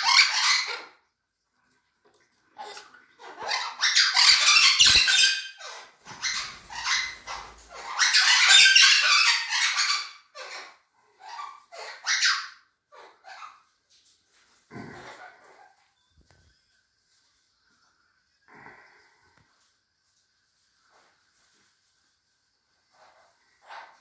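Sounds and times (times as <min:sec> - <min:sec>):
parrots squawking: 0:00.0 - 0:01.0, 0:02.6 - 0:13.7, 0:14.7 - 0:15.9, 0:22.9 - 0:24.0.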